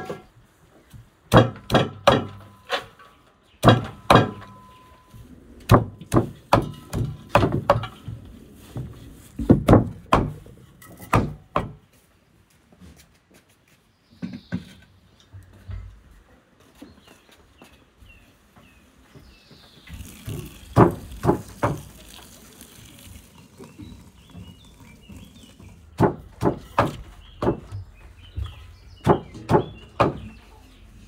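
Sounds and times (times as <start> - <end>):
cleaver chopping on wooden block: 1.3 - 2.4, 3.6 - 4.5, 11.0 - 11.8, 20.3 - 22.0, 25.9 - 27.8, 29.0 - 30.3.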